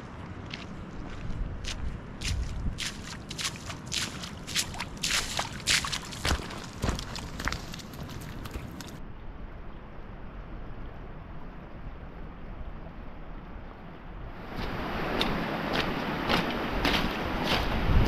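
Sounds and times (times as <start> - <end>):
boots crunching on gravel: 0.5 - 9.0, 14.5 - 17.8
boots splashing in a puddle: 0.5 - 9.0, 14.5 - 18.0
wind rushing: 14.4 - 18.0.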